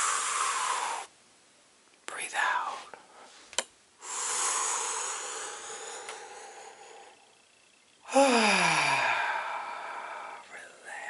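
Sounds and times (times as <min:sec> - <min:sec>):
woman breathing slowly: 0:00.0 - 0:01.1, 0:02.8 - 0:11.0
woman sighing: 0:08.1 - 0:10.4.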